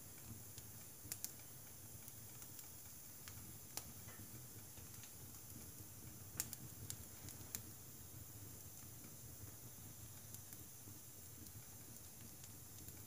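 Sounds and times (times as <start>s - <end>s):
firewood crackling in stove: 0.0s - 13.0s.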